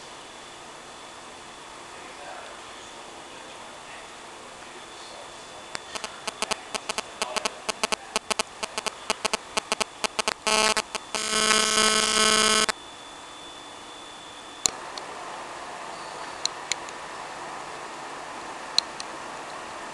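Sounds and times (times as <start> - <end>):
rapid sharp clicks: 5.7 - 12.7
electric buzz: 5.7 - 12.8.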